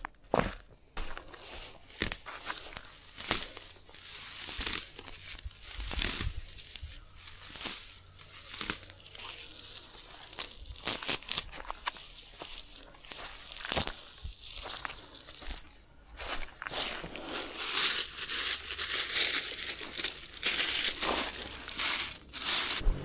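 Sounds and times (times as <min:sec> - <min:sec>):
dry grass torn by hand: 0:01.0 - 0:23.0.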